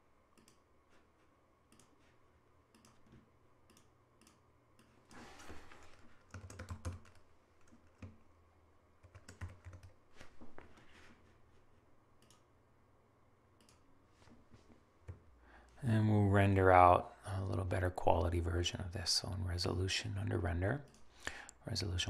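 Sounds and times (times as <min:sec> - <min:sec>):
faint low hum: 0:00.0 - 0:22.0
typing on computer keyboard: 0:05.9 - 0:08.2, 0:09.0 - 0:10.0.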